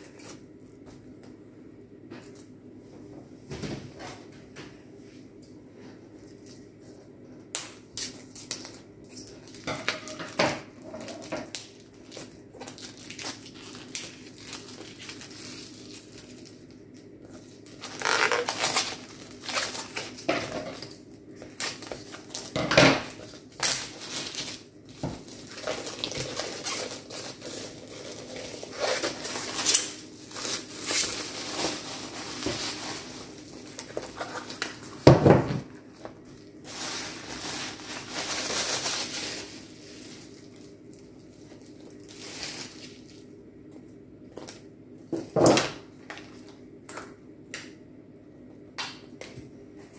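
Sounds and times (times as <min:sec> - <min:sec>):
plastic shrink-wrap crinkling: 0:08.0 - 0:43.3.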